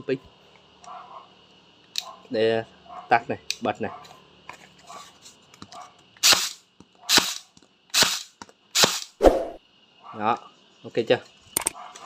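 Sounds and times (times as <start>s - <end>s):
stapler firing into cardboard: 6.2s - 7.4s, 8.0s - 9.2s.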